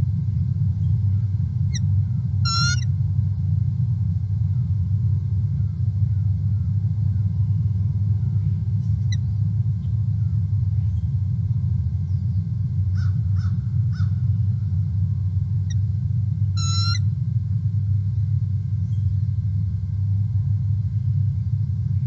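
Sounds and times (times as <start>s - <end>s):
steady low rumble: 0.0s - 22.0s
bird calls: 0.8s - 2.9s, 16.6s - 17.1s.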